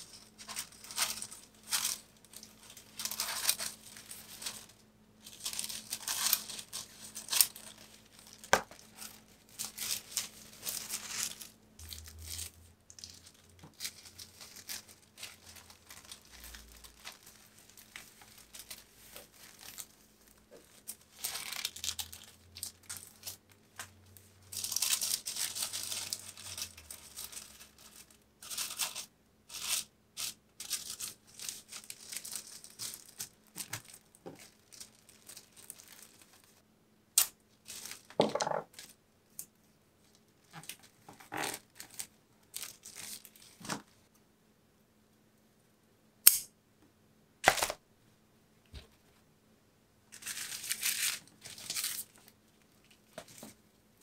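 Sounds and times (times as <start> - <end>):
tissue paper rustling: 0.0 - 23.4, 24.5 - 36.6, 40.6 - 44.0, 50.2 - 52.3.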